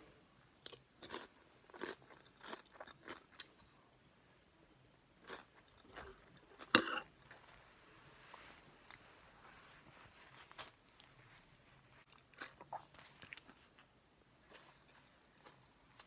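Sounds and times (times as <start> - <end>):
corn chips crunching while chewed: 0.6 - 3.6, 5.2 - 7.5.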